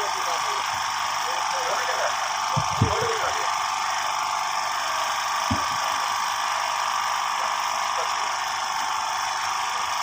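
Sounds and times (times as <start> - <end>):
mechanical drone with hiss: 0.0 - 10.0
short low thump: 5.5 - 5.9.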